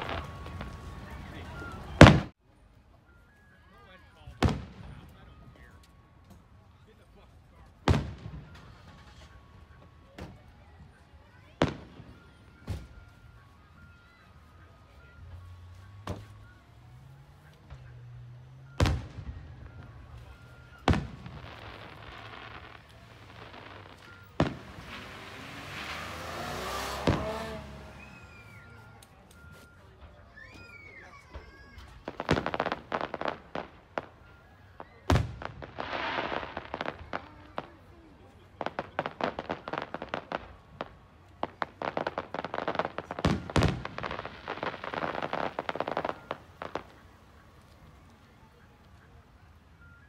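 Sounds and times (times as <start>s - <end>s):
fireworks bangs: 0.0s - 2.4s, 4.3s - 5.7s, 7.8s - 9.5s, 11.5s - 13.1s, 18.7s - 29.0s, 30.5s - 47.7s
fireworks hiss: 21.6s - 28.5s
heavy firework booms: 27.0s - 27.6s.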